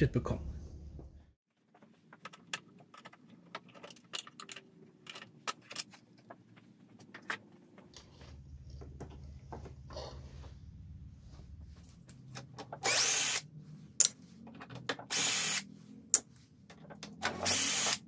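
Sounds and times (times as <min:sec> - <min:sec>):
tools and parts clicking: 0:01.8 - 0:07.4, 0:14.0 - 0:18.0.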